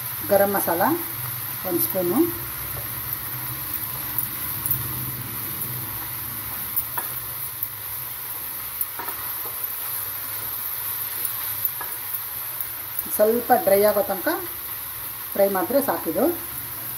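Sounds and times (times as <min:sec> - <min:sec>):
vegetables sizzling in pan: 0:00.0 - 0:16.9.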